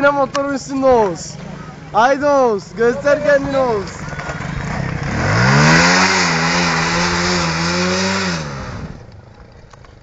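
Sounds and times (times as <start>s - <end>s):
motorcycle engine revving: 2.6s - 9.4s.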